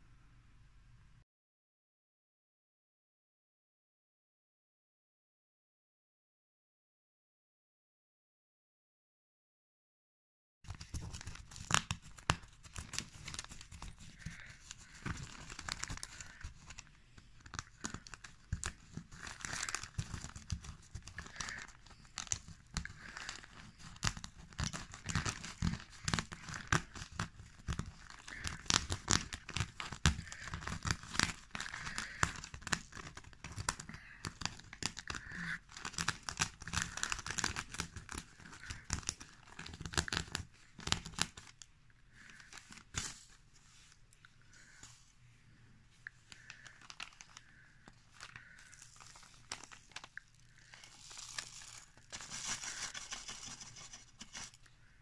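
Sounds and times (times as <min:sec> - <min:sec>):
newspaper rustling and crinkling: 0:10.7 - 0:41.6, 0:46.3 - 0:54.7.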